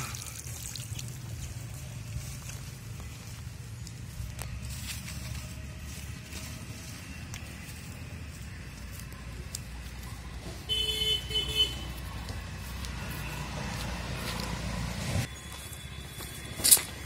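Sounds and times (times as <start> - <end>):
motor vehicle passing: 0.8 - 15.4
vehicle horn honks: 10.7 - 12.0.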